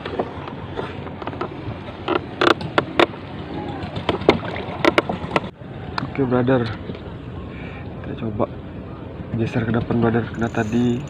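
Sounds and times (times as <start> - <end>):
wooden canoe knocks and creaks: 3.8 - 5.5.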